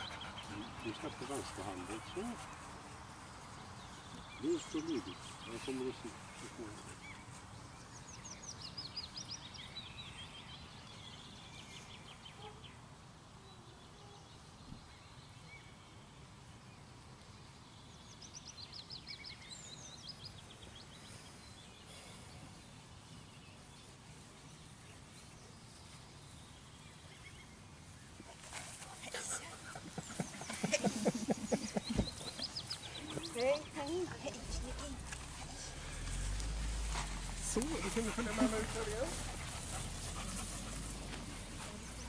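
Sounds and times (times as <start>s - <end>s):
songbird singing: 0.0s - 42.0s
faint low rumble: 34.2s - 42.0s.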